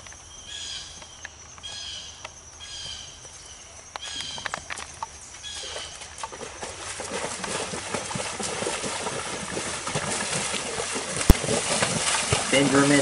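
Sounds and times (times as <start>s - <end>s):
hooves splashing in water: 4.0s - 13.0s.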